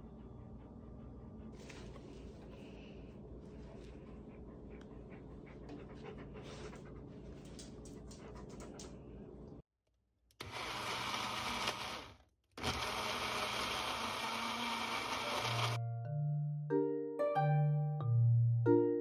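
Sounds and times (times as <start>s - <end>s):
blender running: 10.4s - 15.8s.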